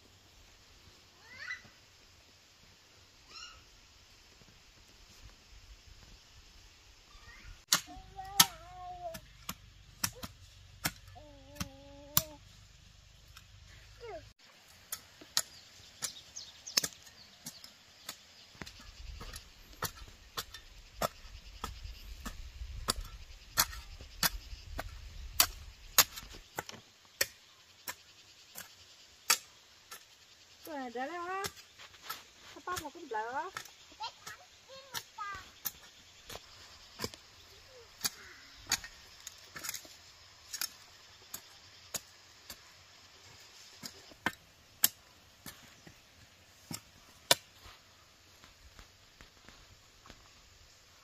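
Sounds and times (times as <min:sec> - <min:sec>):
sharp tool strikes: 0:07.7 - 0:12.4.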